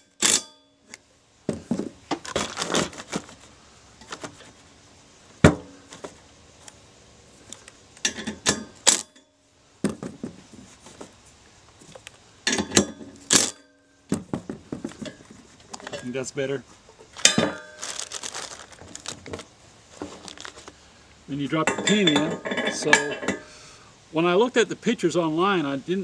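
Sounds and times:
metal hardware clinking and rattling: 0:07.5 - 0:09.3, 0:12.4 - 0:13.8, 0:14.8 - 0:16.2, 0:16.9 - 0:19.4, 0:21.6 - 0:23.5.

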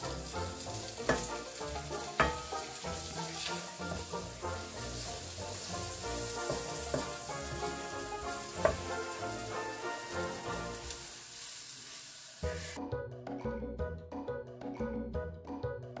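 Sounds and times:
background music: 0:00.0 - 0:11.3, 0:12.4 - 0:16.0
butter and flour sizzling in a pan: 0:00.0 - 0:12.8
wooden spatula stirring: 0:00.8 - 0:10.0.

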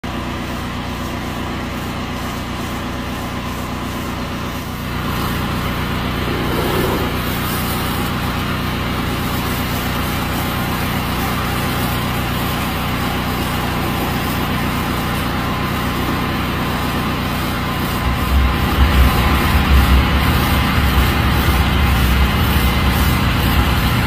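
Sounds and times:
pressure washer engine running: 0:00.1 - 0:24.0
spray hissing: 0:05.1 - 0:08.0, 0:10.6 - 0:24.0.

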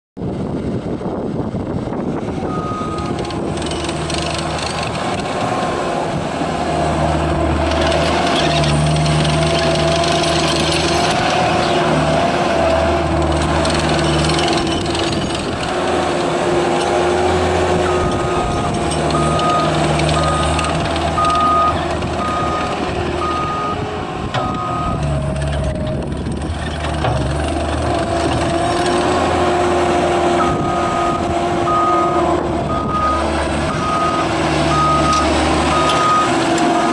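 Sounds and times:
diesel engine running: 0:00.2 - 0:36.9
reversing alarm beeps: 0:02.5 - 0:03.2, 0:17.9 - 0:18.6, 0:19.2 - 0:23.8, 0:24.4 - 0:25.0, 0:30.4 - 0:36.9.

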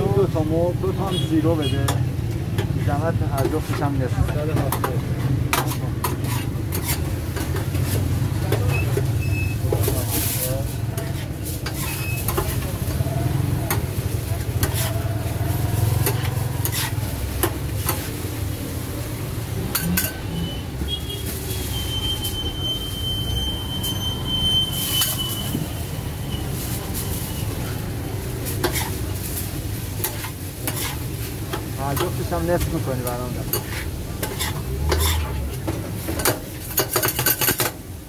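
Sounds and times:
sizzling: 0:04.7 - 0:38.0
metal utensils clinking: 0:19.6 - 0:20.3, 0:30.0 - 0:35.4.

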